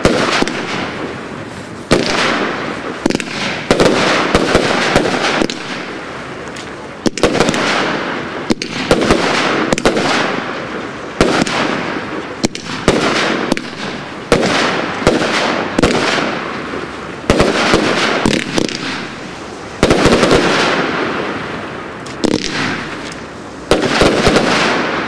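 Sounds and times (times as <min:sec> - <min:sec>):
firework bangs: 0:00.0 - 0:25.0.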